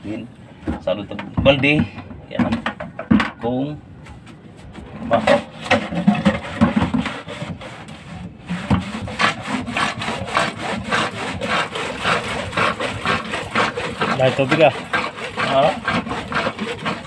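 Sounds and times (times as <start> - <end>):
hand pump plunger scraping: 4.7 - 17.0.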